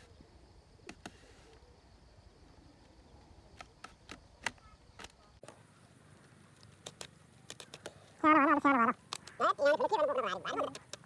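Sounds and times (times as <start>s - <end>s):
bamboo strips clicking: 3.6s - 5.6s, 6.2s - 8.2s, 9.0s - 9.5s, 10.5s - 11.0s.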